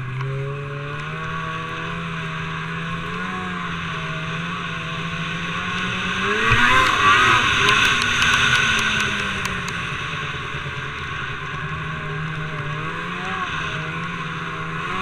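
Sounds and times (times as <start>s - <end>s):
snowmobile engine revving: 0.0s - 15.0s
track and snow rushing: 0.0s - 15.0s
sharp ticks: 6.7s - 9.9s.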